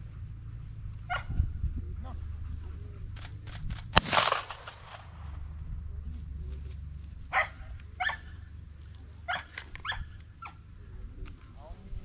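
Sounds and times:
dog barking: 1.1 - 1.4, 7.3 - 8.4, 9.2 - 10.6
loud shotgun shot: 3.2 - 5.5.

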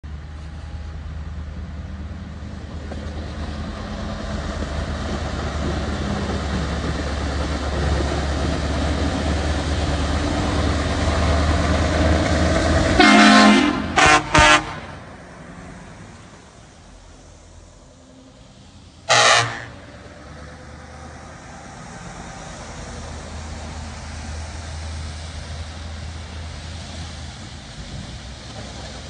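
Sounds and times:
truck air horn: 13.0 - 15.1, 19.1 - 19.9.

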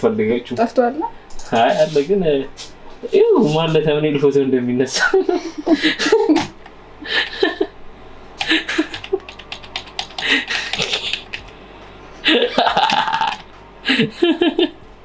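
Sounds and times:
computer keyboard clicks: 8.4 - 11.6.

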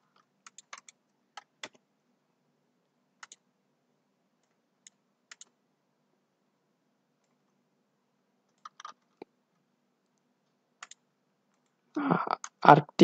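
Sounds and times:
faint steady hum: 0.0 - 13.0
mouse and keyboard clicks: 0.1 - 1.8, 3.2 - 3.4, 4.4 - 5.6, 8.5 - 9.3, 10.8 - 11.8.

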